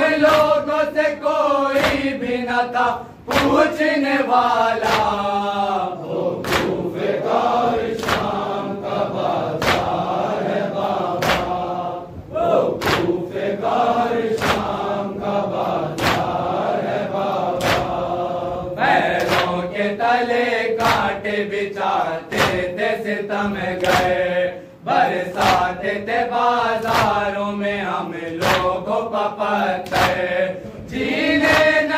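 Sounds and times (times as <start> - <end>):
men chanting together: 0.0 - 31.9
hands slapping chests: 0.2 - 0.6, 1.7 - 2.2, 3.3 - 3.8, 4.8 - 5.2, 6.4 - 6.9, 7.8 - 8.5, 9.6 - 10.2, 11.1 - 11.7, 12.8 - 13.2, 14.2 - 14.9, 15.9 - 16.4, 17.5 - 18.1, 19.1 - 19.7, 20.8 - 21.2, 22.3 - 22.8, 23.8 - 24.2, 25.3 - 25.8, 26.8 - 27.3, 28.3 - 28.8, 29.8 - 30.3, 31.0 - 31.9.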